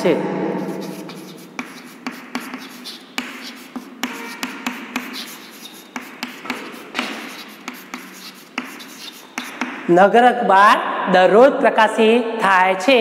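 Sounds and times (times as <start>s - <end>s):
chalk scratching on chalkboard: 0.6s - 9.9s
chalk tapping on chalkboard: 0.6s - 9.9s.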